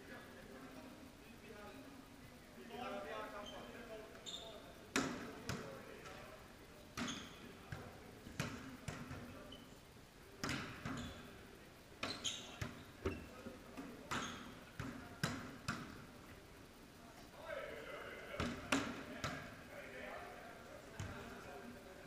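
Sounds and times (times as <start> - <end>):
volleyballs smacking and bouncing: 4.9 - 6.2, 7.0 - 9.4, 10.4 - 11.0, 12.0 - 16.1, 18.4 - 19.5.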